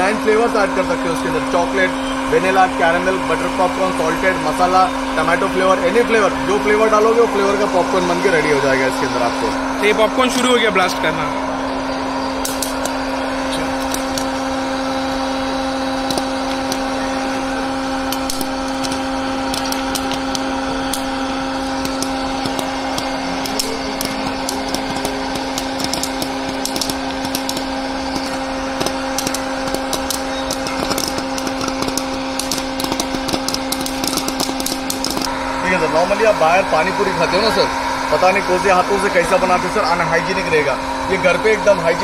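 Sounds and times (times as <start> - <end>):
popcorn maker motor hum: 0.0 - 42.0
popcorn kernels popping: 12.4 - 35.3.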